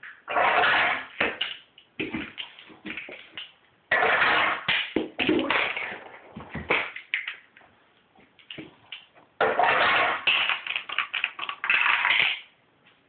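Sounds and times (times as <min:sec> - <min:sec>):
plastic toys clattering on tracks: 0:08.4 - 0:12.5.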